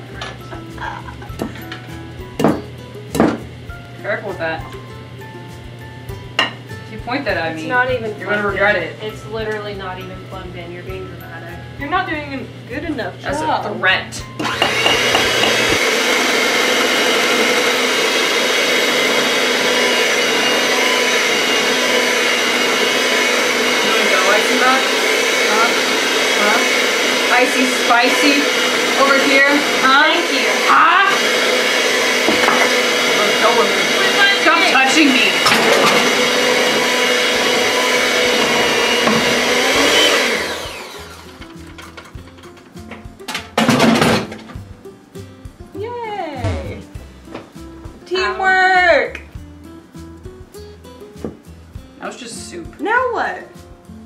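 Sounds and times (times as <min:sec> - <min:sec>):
electric hand mixer whisking: 0:14.4 - 0:41.7.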